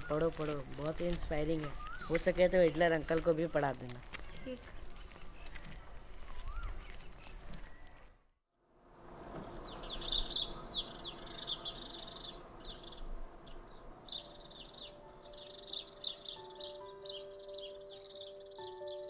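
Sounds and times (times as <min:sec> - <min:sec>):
sparrows chirping: 0:00.0 - 0:08.0, 0:09.3 - 0:19.0
soft sustained music notes: 0:09.1 - 0:19.0.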